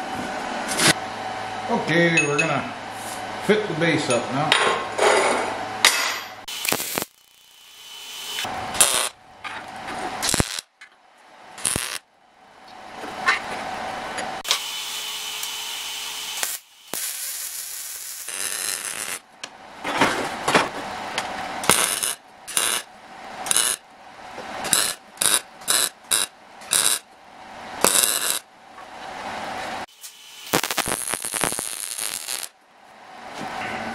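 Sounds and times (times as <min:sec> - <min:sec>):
welder crackling bursts: 0:06.5 - 0:09.2, 0:10.2 - 0:10.7, 0:11.6 - 0:12.0, 0:15.4 - 0:19.2, 0:21.6 - 0:22.9, 0:23.5 - 0:23.8, 0:24.6 - 0:27.0, 0:27.8 - 0:28.4, 0:29.9 - 0:32.6.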